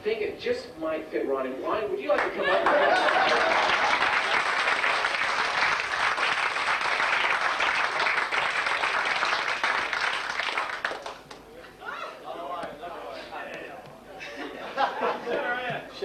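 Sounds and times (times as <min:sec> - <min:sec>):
audience applauding: 0:02.2 - 0:11.4.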